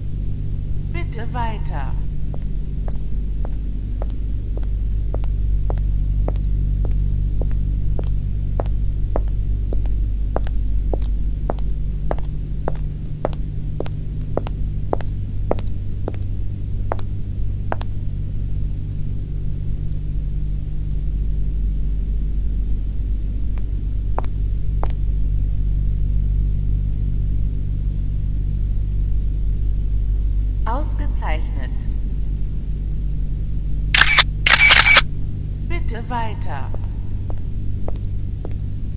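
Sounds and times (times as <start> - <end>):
low droning hum: 0.0 - 38.9
high-heeled footsteps on hard floor: 2.3 - 16.2.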